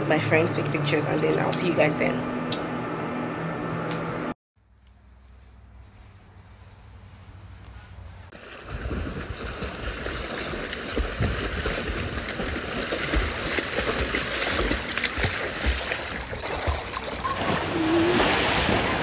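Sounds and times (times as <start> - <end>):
pool water splashing: 8.4 - 19.0.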